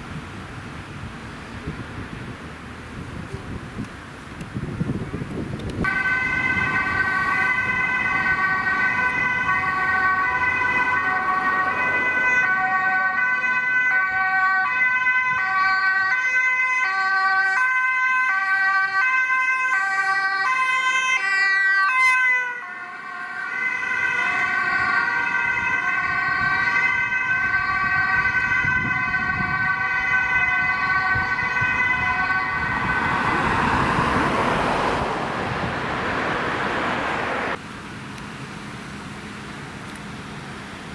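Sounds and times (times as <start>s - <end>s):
engine and tyre noise: 0.0s - 40.9s
ambulance two-tone siren: 5.8s - 35.3s.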